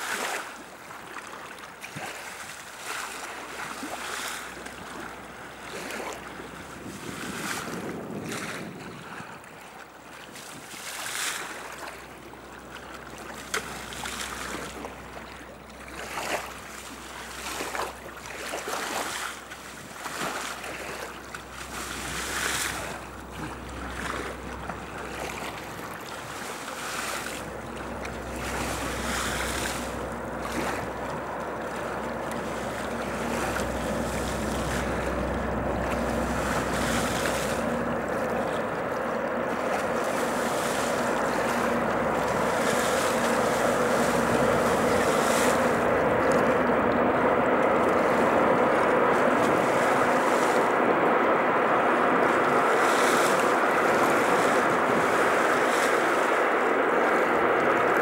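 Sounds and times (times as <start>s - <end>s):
river water splashing: 0.0s - 58.0s
low rumble and hum: 1.8s - 10.7s, 11.5s - 58.0s.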